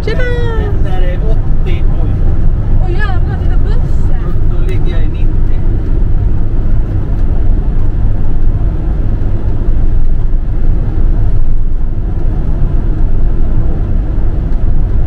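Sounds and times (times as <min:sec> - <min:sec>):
engine drone: 0:00.0 - 0:15.0
tyre and wind rumble: 0:00.0 - 0:15.0.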